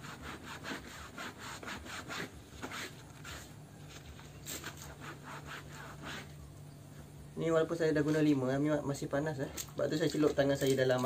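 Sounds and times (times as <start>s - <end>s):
scrubber scratching wet fabric: 0.0s - 6.4s.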